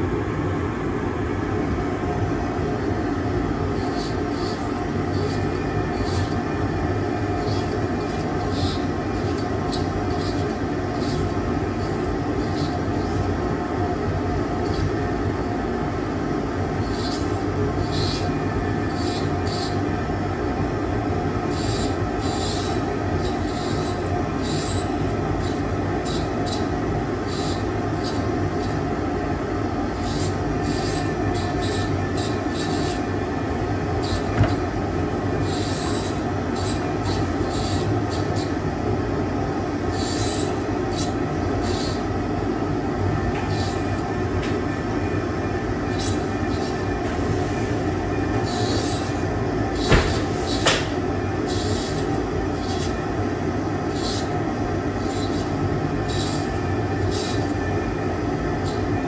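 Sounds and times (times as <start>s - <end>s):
rotary handpiece motor whine: 2.7s - 59.0s
cutting disc scratchy squeals: 3.7s - 13.4s, 14.6s - 15.0s, 16.7s - 19.9s, 21.5s - 28.9s, 29.8s - 38.7s, 39.8s - 42.1s, 43.2s - 44.2s, 45.8s - 53.1s, 53.7s - 57.8s, 58.5s - 59.0s.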